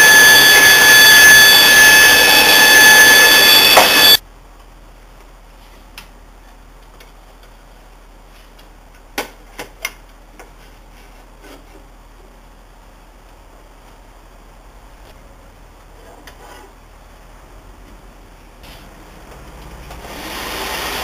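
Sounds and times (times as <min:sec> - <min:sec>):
band saw whine: 0:00.0 - 0:04.2.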